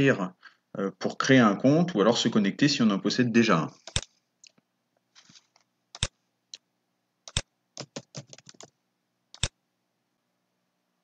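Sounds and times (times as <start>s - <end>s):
mouse clicks: 9.3s - 9.6s.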